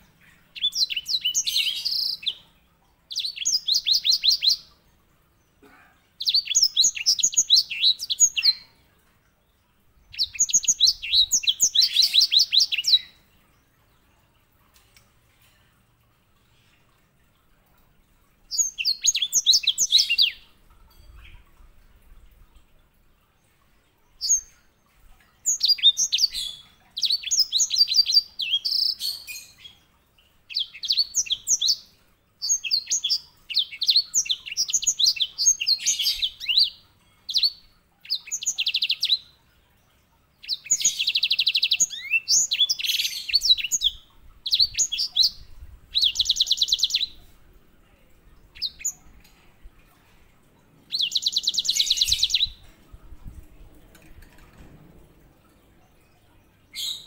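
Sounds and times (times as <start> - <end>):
finch twittering song with trills: 10.0 - 13.2, 40.4 - 47.3, 50.9 - 54.7.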